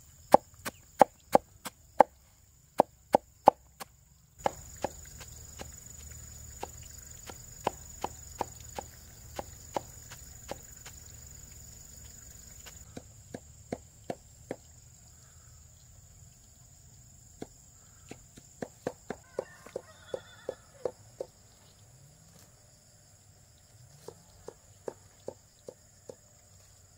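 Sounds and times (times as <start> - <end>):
knife chopping on cutting board: 4.4 - 5.8, 6.6 - 10.9.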